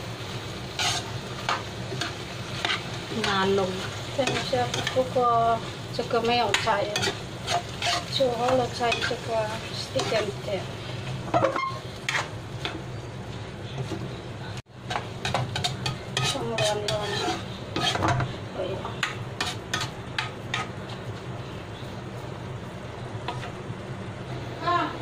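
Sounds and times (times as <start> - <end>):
light sizzle: 0.0 - 25.0
metal spatula scraping a wok: 0.7 - 12.8, 14.9 - 21.0.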